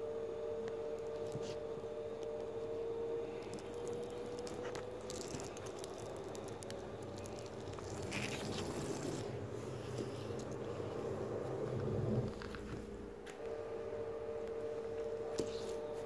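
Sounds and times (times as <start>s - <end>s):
steady hum: 0.0s - 16.0s.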